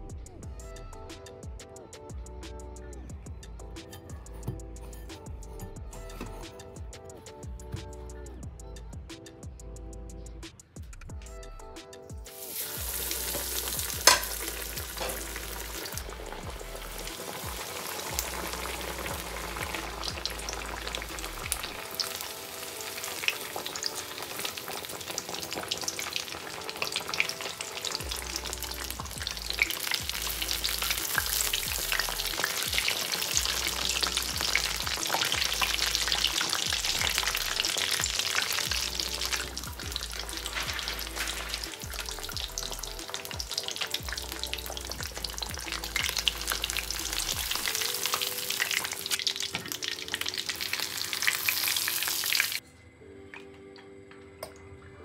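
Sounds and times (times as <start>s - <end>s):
deep-frying sizzling and crackling: 12.2s - 52.6s.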